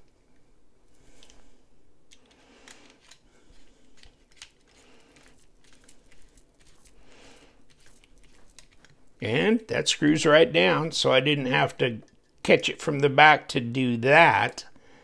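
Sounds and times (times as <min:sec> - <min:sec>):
screwdriver clicking and scraping: 0:02.1 - 0:09.2.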